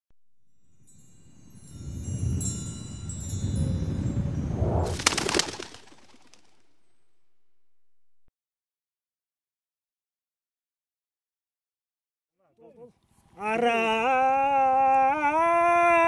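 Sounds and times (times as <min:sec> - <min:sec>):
twinkling chime tones: 0:00.5 - 0:04.9
rushing whoosh: 0:01.4 - 0:06.8
low rumble: 0:01.6 - 0:05.0.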